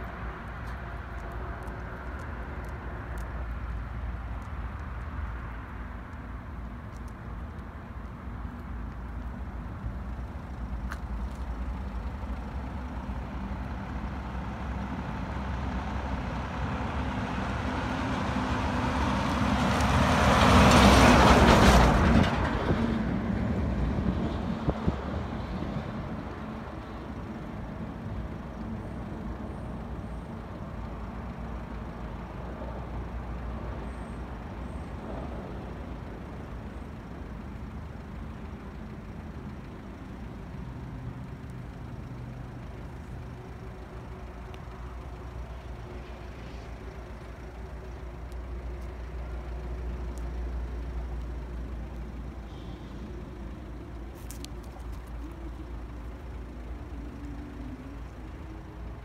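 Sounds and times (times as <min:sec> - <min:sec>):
engines rumbling: 0:00.0 - 0:59.0
road traffic: 0:00.0 - 0:59.0
heavy diesel machinery: 0:07.7 - 0:59.0.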